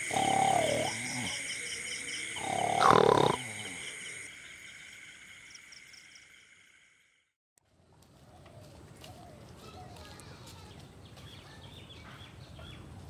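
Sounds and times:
crickets chirping: 0.0 - 7.4.

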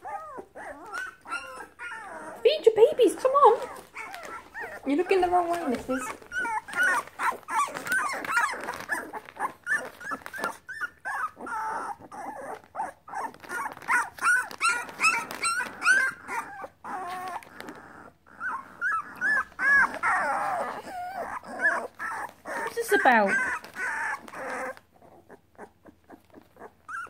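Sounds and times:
puppies squealing and whimpering: 0.0 - 27.0.

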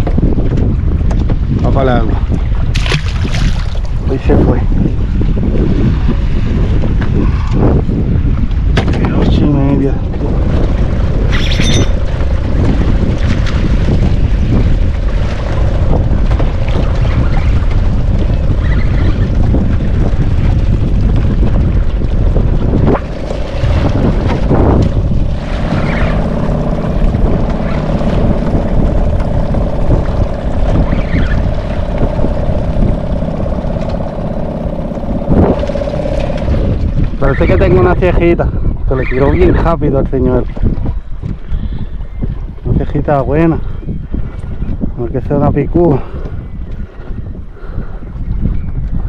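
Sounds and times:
wind rushing over microphone: 0.0 - 49.0
steady hum: 10.8 - 37.4.

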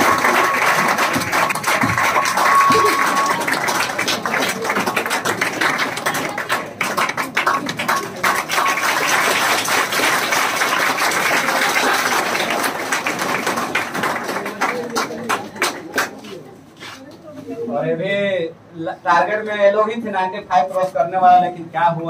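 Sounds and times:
crowd clapping: 0.0 - 16.5
murmur of voices: 0.0 - 22.0.

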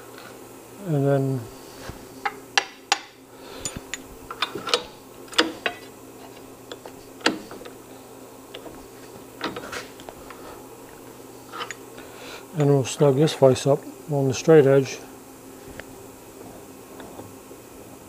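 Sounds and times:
faint steady hum: 0.0 - 18.0
metal tools clinking and knocking: 11.5 - 11.8.

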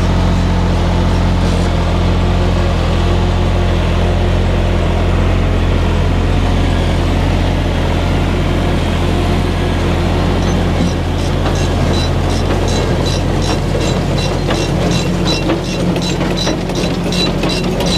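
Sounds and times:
tractor diesel engine under load: 0.0 - 17.9.

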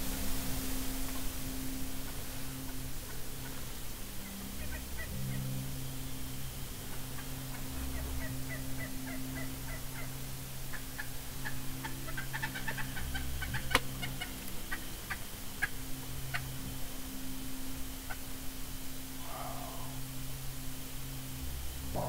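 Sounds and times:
turkey calling: 2.0 - 5.7, 6.4 - 16.9, 18.0 - 18.4, 19.1 - 20.2.

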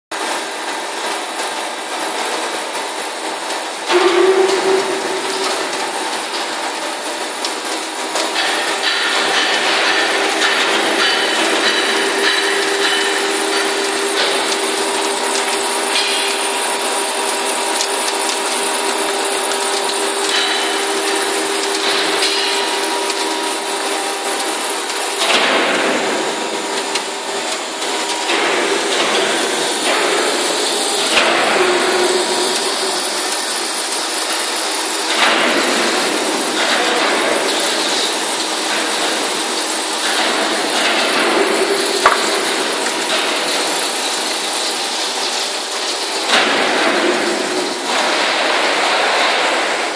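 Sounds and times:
workshop noise: 0.2 - 49.9
metal cutting: 8.3 - 45.3
lathe machine hum: 26.0 - 46.4.

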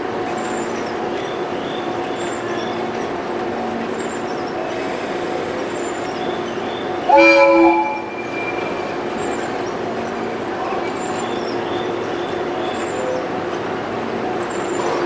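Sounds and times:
electric train humming: 0.0 - 15.0
train horn blast: 7.0 - 9.0.

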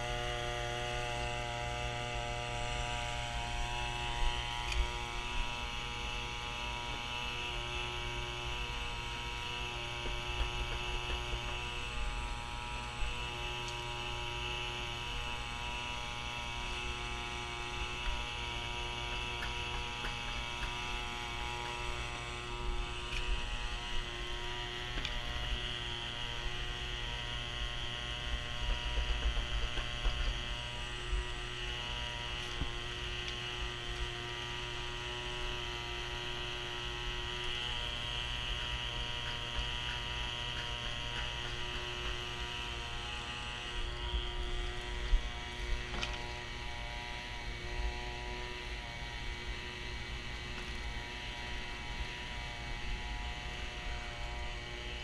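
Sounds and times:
electric motor hum: 0.0 - 55.0.

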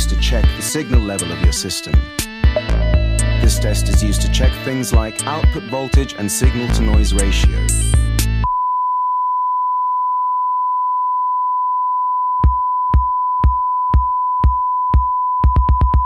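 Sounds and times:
steady test tone: 2.6 - 5.3.

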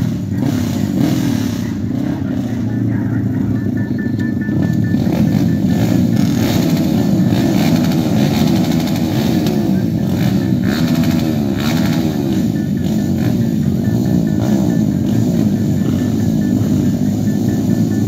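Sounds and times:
dirt bike engines revving: 0.0 - 18.0.

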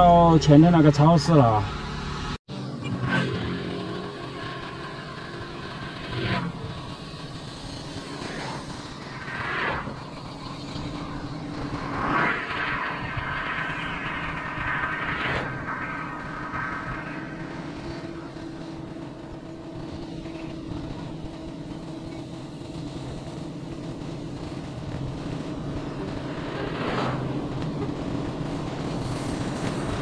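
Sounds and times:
vehicle motor hum: 0.1 - 30.0.

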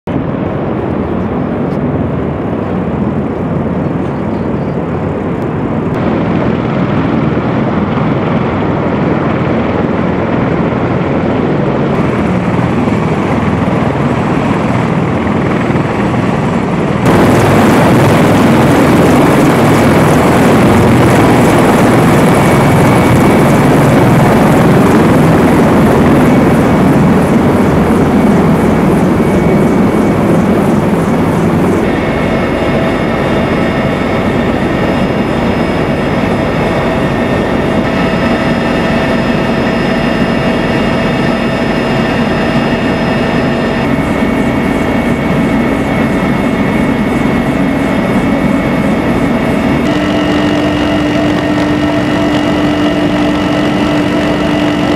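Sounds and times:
aircraft engine noise: 0.0 - 54.9
faint high whine: 16.6 - 54.9.

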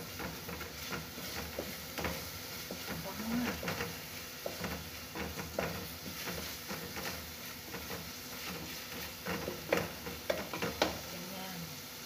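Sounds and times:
wooden spoon scraping a pot: 0.0 - 11.3
low sizzle: 0.0 - 12.0
spoon knocking against pot: 9.3 - 11.0.

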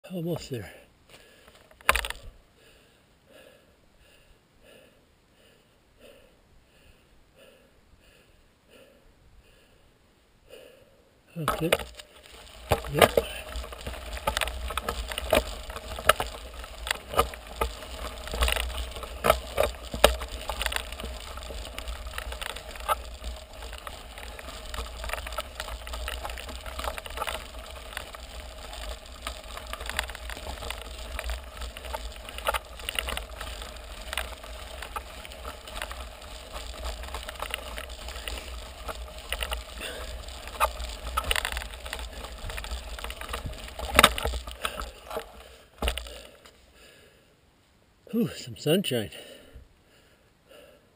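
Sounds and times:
bike tyres on gravel: 0.0 - 2.4, 11.4 - 47.1
stones crunching and popping: 1.6 - 2.3, 11.4 - 46.4.

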